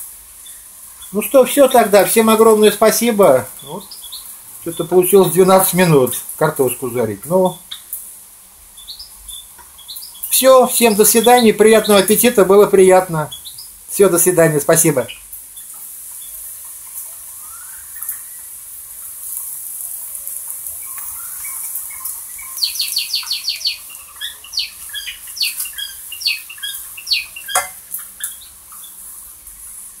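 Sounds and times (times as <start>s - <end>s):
potatoes sizzling in a wok: 0.0s - 30.0s
spatula stirring: 27.5s - 27.8s.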